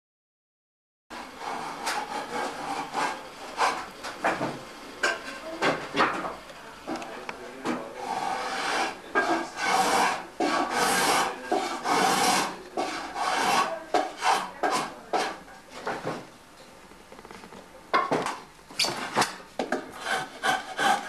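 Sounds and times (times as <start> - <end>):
hand tool shaving wood: 1.2 - 3.9, 8.0 - 15.4, 19.0 - 21.0.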